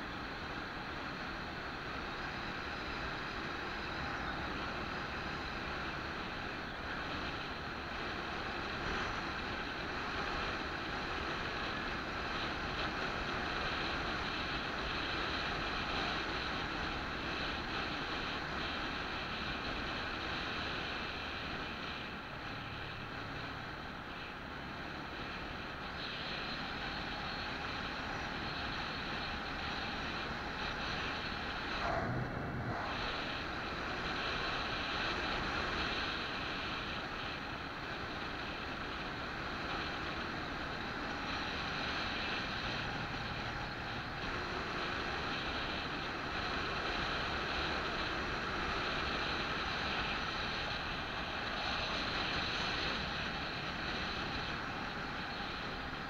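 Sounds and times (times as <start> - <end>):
vehicle road noise: 0.0 - 56.0
wind buffeting microphone: 28.3 - 56.0.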